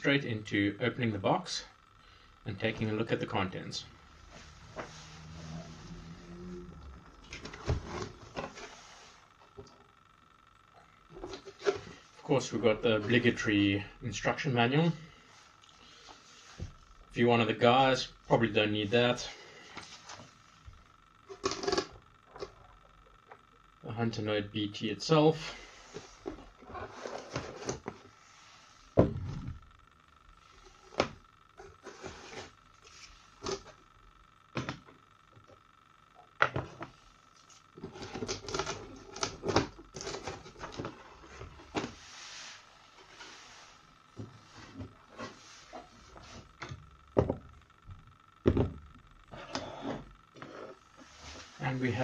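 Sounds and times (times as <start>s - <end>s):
cardboard rustling and scraping: 7.2s - 9.4s, 25.9s - 29.6s, 30.6s - 33.8s, 37.8s - 46.7s
plastic items knocking: 48.4s - 48.8s.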